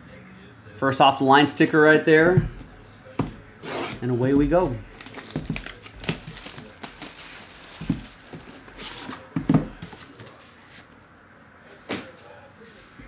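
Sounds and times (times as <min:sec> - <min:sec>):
plastic wrap tearing and crinkling: 0:04.8 - 0:10.9
cardboard box knocks: 0:07.8 - 0:08.4.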